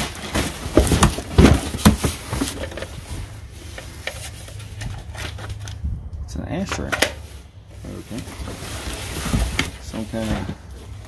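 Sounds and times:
items knocking in cardboard box: 0:00.0 - 0:02.9
rustling in box: 0:00.0 - 0:05.7, 0:07.2 - 0:11.0.

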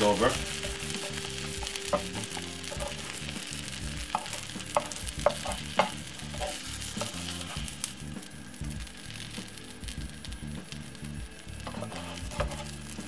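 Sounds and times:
spatula scraping pan: 0:00.0 - 0:07.8, 0:11.6 - 0:13.0
omelette sizzling in frying pan: 0:00.0 - 0:13.0.

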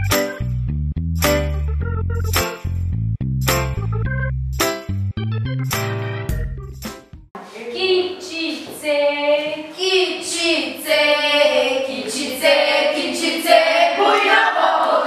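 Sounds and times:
girls singing unaccompanied: 0:07.8 - 0:15.0.

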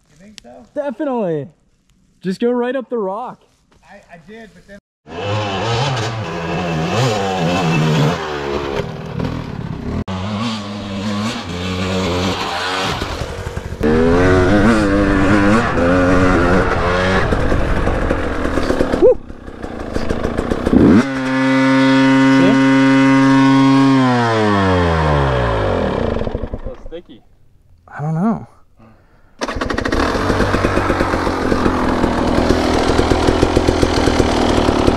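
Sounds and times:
dirt bike engine revving: 0:05.1 - 0:26.9, 0:29.4 - 0:34.9.

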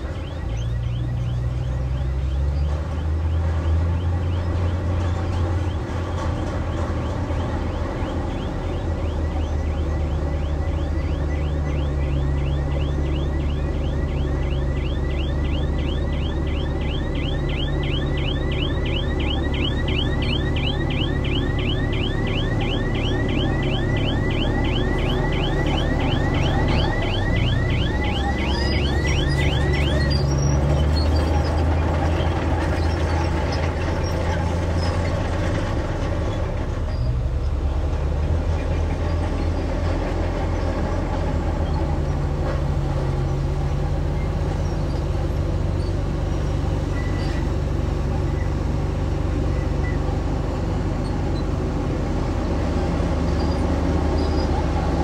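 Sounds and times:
bulldozer diesel engine: 0:00.0 - 0:55.0
high repeating squeak: 0:07.6 - 0:35.0.

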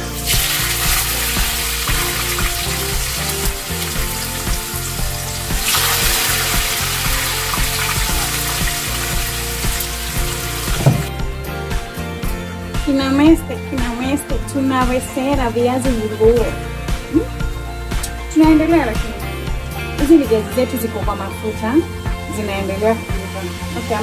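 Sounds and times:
potatoes sizzling in hot oil: 0:00.0 - 0:11.1.

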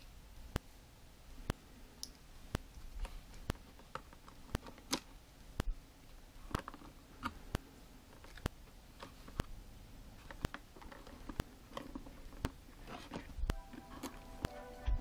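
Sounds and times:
plastic and cardboard handling: 0:06.4 - 0:15.0.

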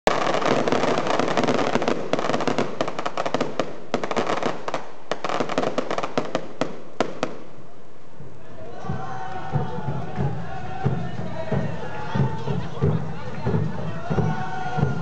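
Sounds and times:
firework crackling sparks: 0:00.1 - 0:08.2.

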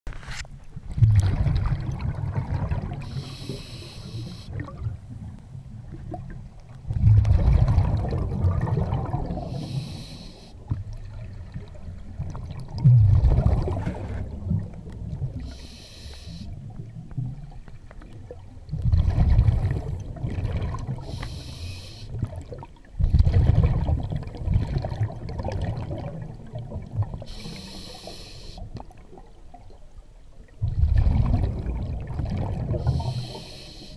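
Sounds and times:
exhaled air bubbling: 0:00.8 - 0:33.9
regulator air hiss on inhale: 0:03.0 - 0:04.5, 0:09.4 - 0:10.7, 0:15.4 - 0:16.6, 0:21.0 - 0:22.2, 0:27.2 - 0:28.7, 0:32.8 - 0:33.9.

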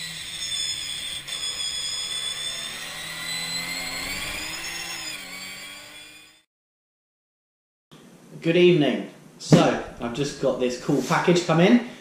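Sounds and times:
racing car engines at high revs: 0:02.4 - 0:06.0.

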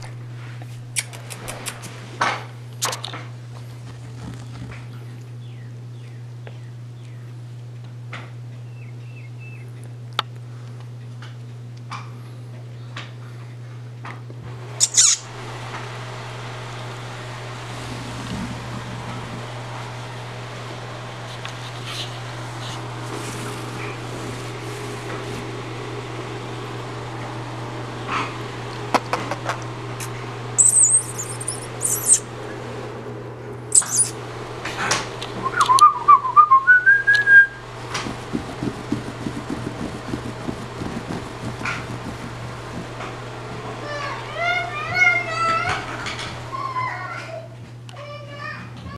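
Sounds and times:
steady low hum: 0:00.0 - 0:48.0
puppies squeaking and yelping: 0:14.8 - 0:15.3, 0:30.6 - 0:32.3, 0:33.7 - 0:34.2
puppy whining: 0:30.6 - 0:32.2, 0:33.7 - 0:34.2.

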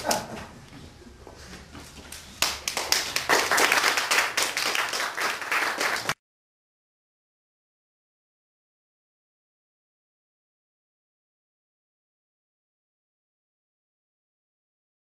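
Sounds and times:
audience applauding: 0:02.4 - 0:06.2.

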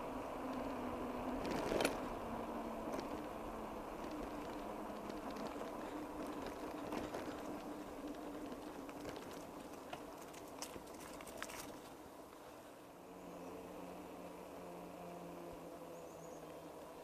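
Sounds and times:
bicycle rolling: 0:00.0 - 0:17.0
faint steady hum: 0:00.0 - 0:17.0.

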